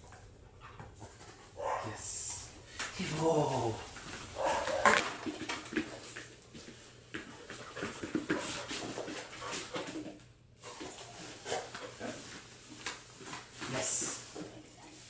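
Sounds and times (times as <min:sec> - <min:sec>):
paw scuffs: 0:00.0 - 0:03.0, 0:03.7 - 0:14.5.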